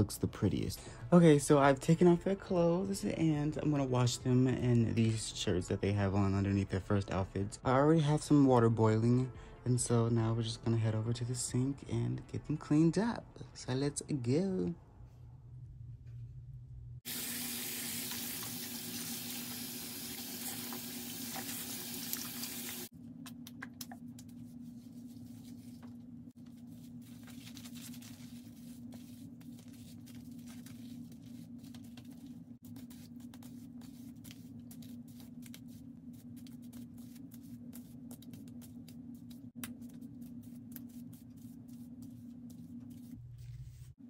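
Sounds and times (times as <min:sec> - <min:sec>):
sink tap running: 0:17.1 - 0:22.9.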